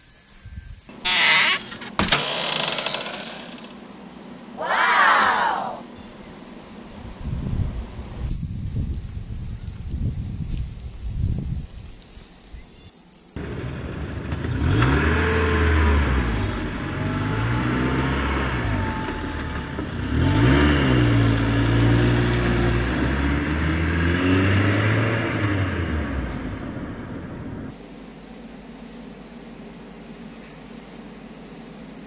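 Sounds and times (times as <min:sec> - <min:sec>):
toy car motor whirring: 0:01.0 - 0:03.7.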